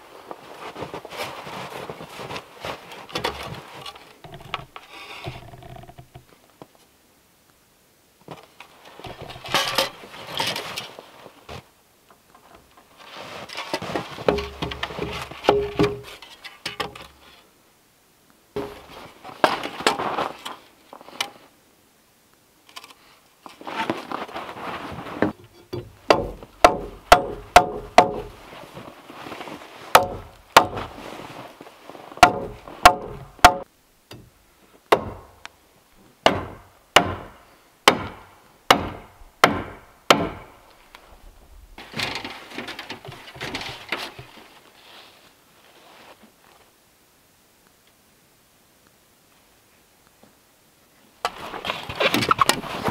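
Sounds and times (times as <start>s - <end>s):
timber scraping and handling: 0.0s - 6.9s, 8.2s - 17.5s, 18.6s - 21.5s, 22.7s - 34.4s, 40.4s - 46.6s, 51.2s - 52.9s
hand tool striking log: 15.5s - 17.0s, 25.7s - 28.4s, 30.0s - 31.0s, 32.2s - 34.3s, 34.9s - 35.4s, 36.2s - 40.6s.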